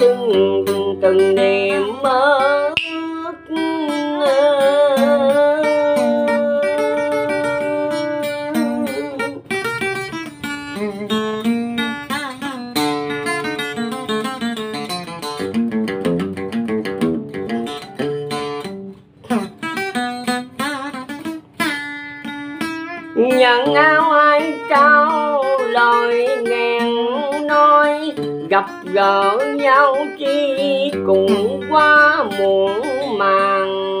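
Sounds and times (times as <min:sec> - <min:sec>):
acoustic guitar melody: 0:00.0 - 0:34.0.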